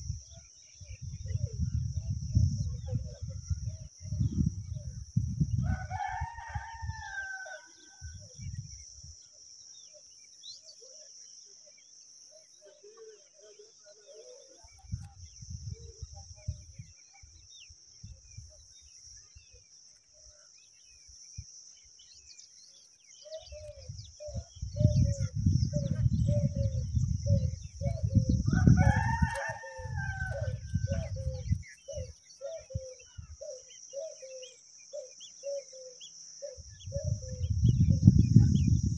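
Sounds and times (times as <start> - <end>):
high insect drone: 0.0 - 38.9
rooster crowing: 5.6 - 8.2, 28.5 - 31.3.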